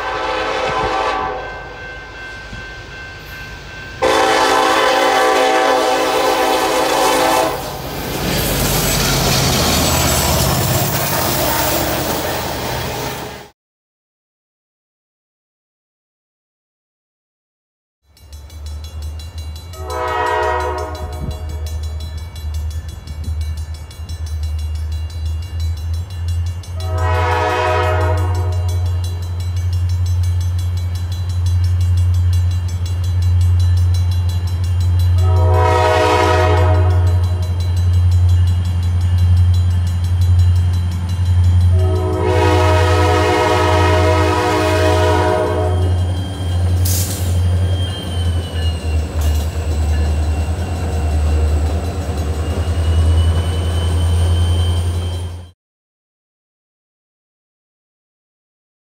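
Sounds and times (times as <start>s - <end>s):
locomotive air horn blasts: 0.0s - 1.8s, 4.0s - 7.8s, 19.8s - 21.8s, 26.8s - 29.0s, 35.2s - 37.5s, 41.7s - 46.2s.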